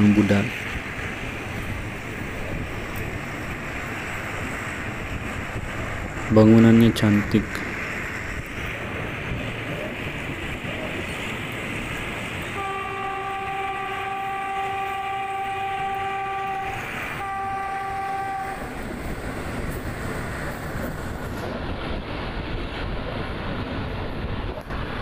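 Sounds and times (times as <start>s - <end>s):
train running on rails: 0.0s - 25.0s
train horn blasts: 12.5s - 18.8s.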